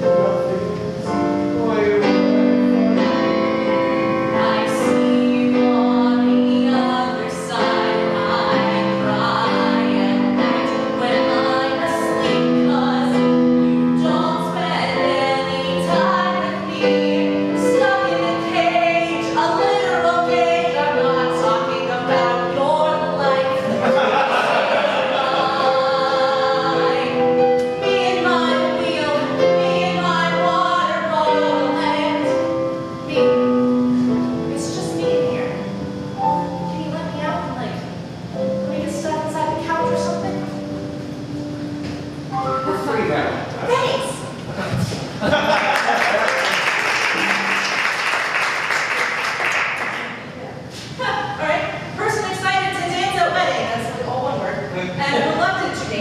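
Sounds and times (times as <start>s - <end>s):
keyboard sustained chords: 0.0s - 49.2s
woman singing: 4.3s - 23.8s, 25.2s - 32.5s.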